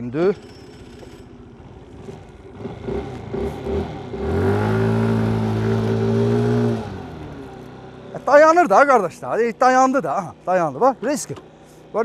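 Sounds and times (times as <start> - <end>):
moped engine revving: 0.6 - 8.5.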